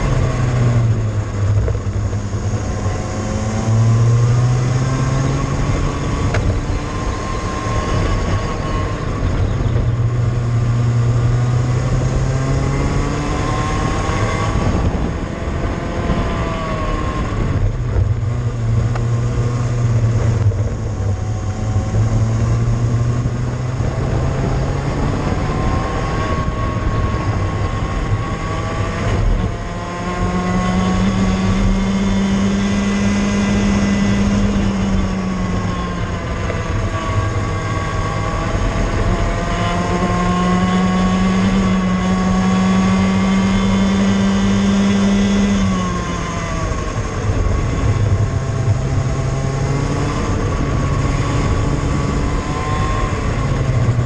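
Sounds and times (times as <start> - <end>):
kart engine revving: 0.0 - 54.0.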